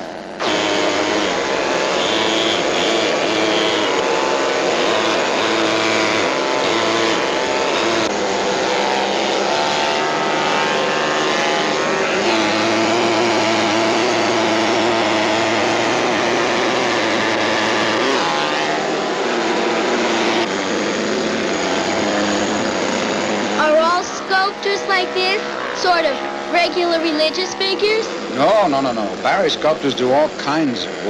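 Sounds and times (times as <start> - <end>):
pneumatic hammer chiselling stone: 0.4 - 8.1.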